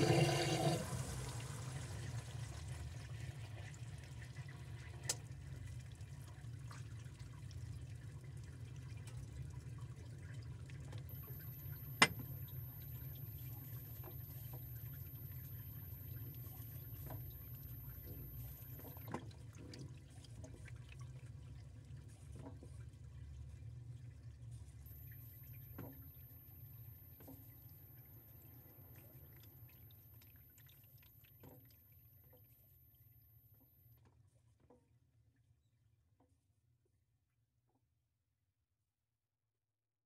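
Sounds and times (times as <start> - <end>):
high electronic tone: 11.1 - 19.1, 24.9 - 33.9.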